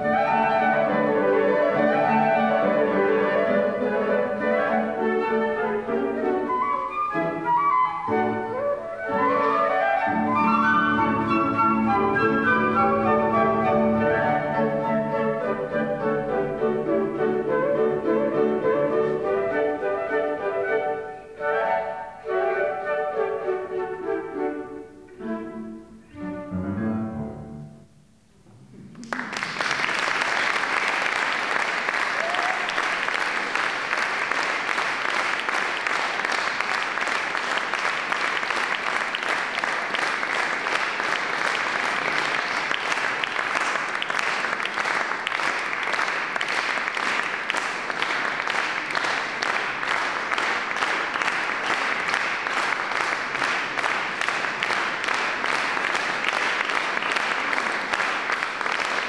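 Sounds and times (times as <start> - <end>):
flutes and piano playing: 0.0 - 28.0
audience applause: 8.2 - 19.8, 29.0 - 59.0.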